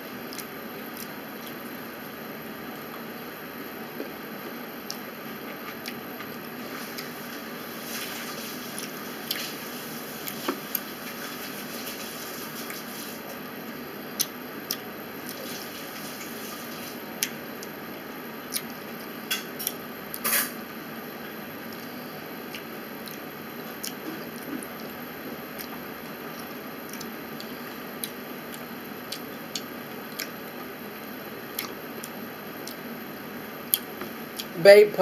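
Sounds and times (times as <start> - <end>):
wet mouth clicks and smacks: 31.6 - 32.8.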